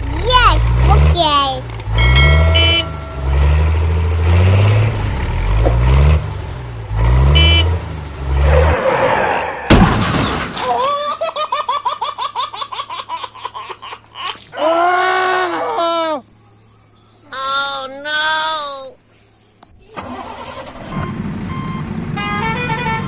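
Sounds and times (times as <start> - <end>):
short horn toot: 2.4 - 3.1
sharp crash: 8.8 - 10.8
pulsing cartoon laugh: 10.6 - 14.4.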